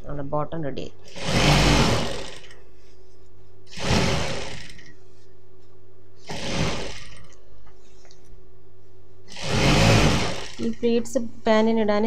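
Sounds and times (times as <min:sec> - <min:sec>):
sewing machine stitching: 0:01.1 - 0:02.6, 0:03.7 - 0:04.9, 0:06.2 - 0:07.4, 0:09.3 - 0:10.8.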